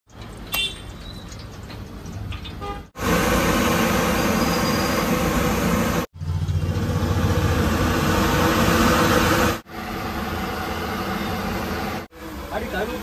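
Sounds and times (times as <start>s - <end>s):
gas burner roaring: 3.0s - 13.0s.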